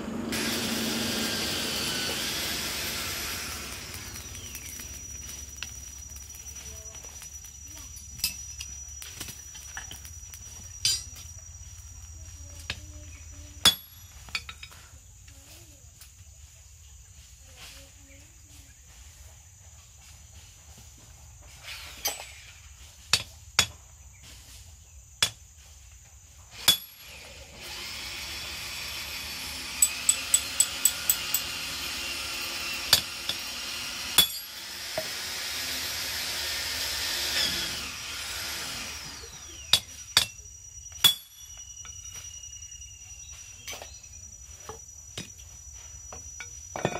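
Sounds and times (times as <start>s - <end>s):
rushing mechanical noise: 0.0s - 7.4s
hammer striking metal on anvil: 29.8s - 31.5s.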